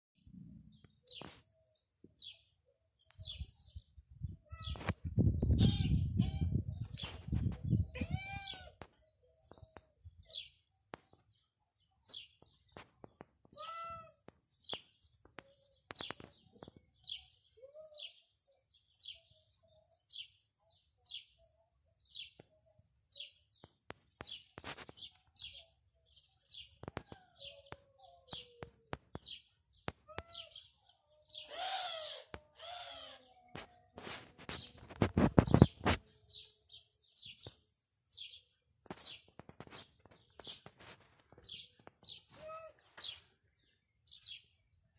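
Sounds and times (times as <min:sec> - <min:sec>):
small birds chirping: 0:00.2 - 0:44.9
drawn-out bird calls: 0:31.3 - 0:33.4.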